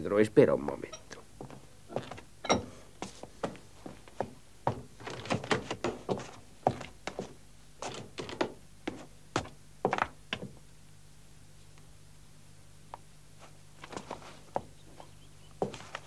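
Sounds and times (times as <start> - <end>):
clog footsteps on stone: 1.4 - 10.6, 15.6 - 16.0.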